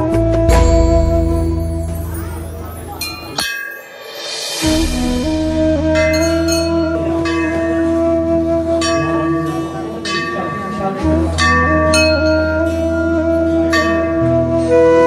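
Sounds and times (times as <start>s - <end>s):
metal bells struck: 0.5s - 8.0s, 8.8s - 14.3s
background music with low drone: 4.6s - 15.0s.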